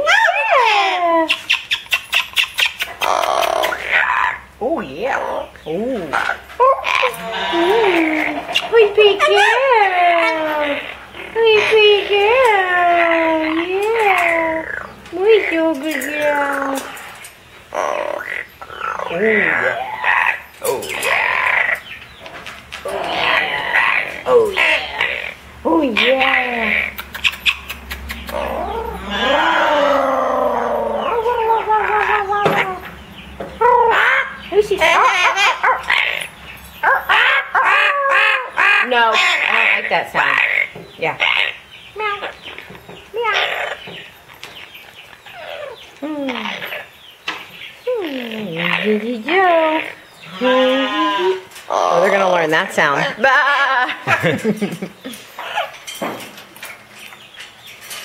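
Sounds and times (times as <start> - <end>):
parrot calling: 0.0 - 57.4.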